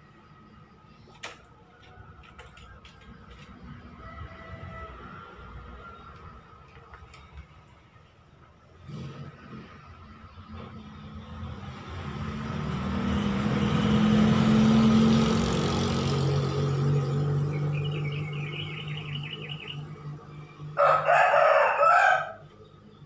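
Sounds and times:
passing vehicle engine hum: 0:00.0 - 0:23.0
rooster crowing: 0:03.6 - 0:06.4, 0:20.7 - 0:22.5.

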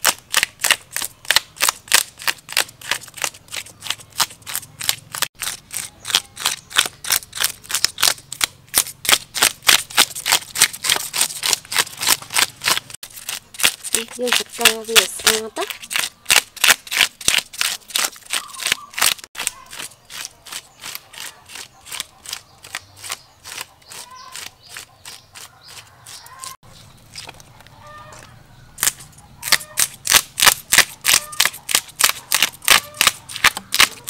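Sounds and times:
knife scraping fish scales: 0:00.0 - 0:26.6.

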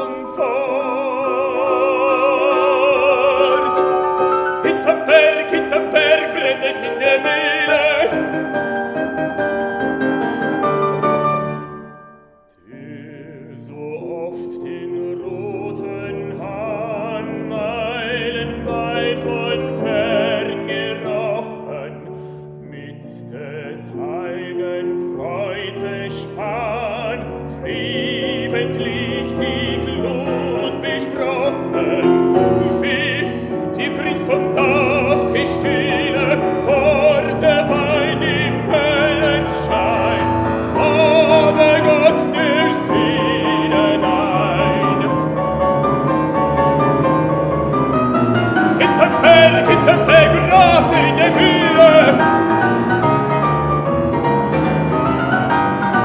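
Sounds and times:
operatic baritone singing: 0:00.0 - 0:09.0, 0:12.5 - 0:47.3, 0:48.1 - 0:53.5
grand piano: 0:00.0 - 0:56.0.

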